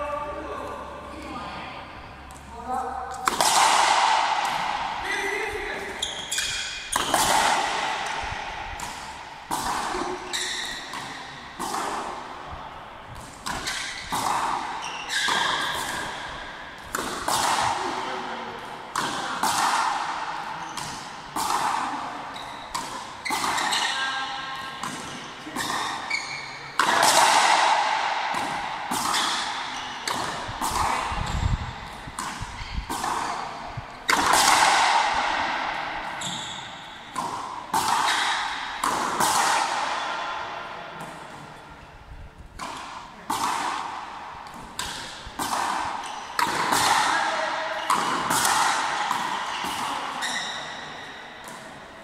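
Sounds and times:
ball cracking off rackets: 5.8s - 18.1s, 26.8s - 40.4s.

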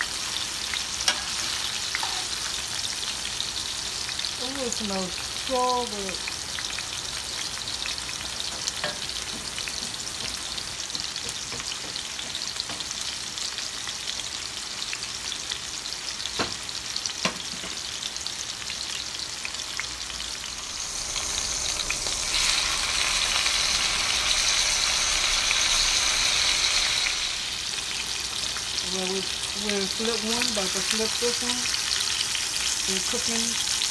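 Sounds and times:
steaks sizzling in skillet: 0.0s - 33.9s.

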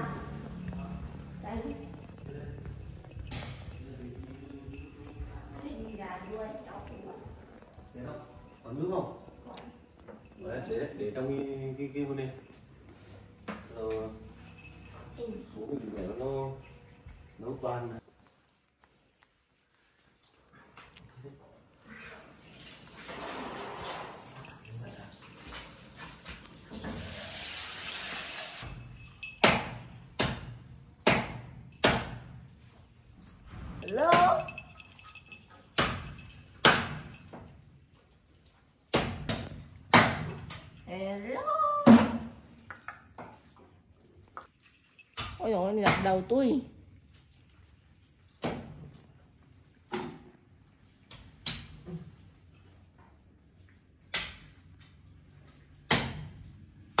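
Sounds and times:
steady hiss: 25.6s - 28.7s
sharp ringing knocks: 28.6s - 32.4s.

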